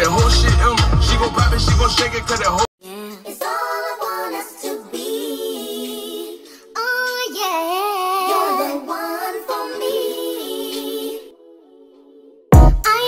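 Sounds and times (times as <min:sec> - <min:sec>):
woman singing a song: 0:02.8 - 0:06.0, 0:06.7 - 0:11.0, 0:12.7 - 0:13.0.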